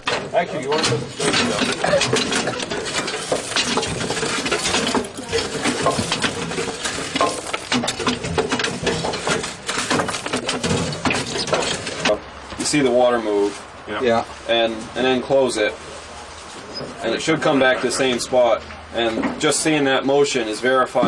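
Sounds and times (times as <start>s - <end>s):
ash and clinker clattering down: 0.0s - 12.2s
metal rake scraping: 0.0s - 12.2s.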